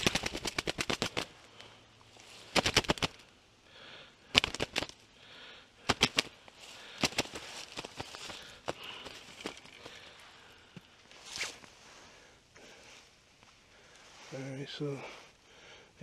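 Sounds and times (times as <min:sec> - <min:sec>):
footsteps crunching dry leaves: 0:06.0 - 0:10.1.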